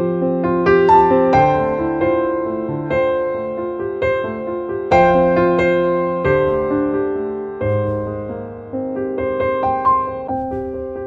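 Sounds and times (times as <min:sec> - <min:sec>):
slow piano chords: 0:00.0 - 0:11.0.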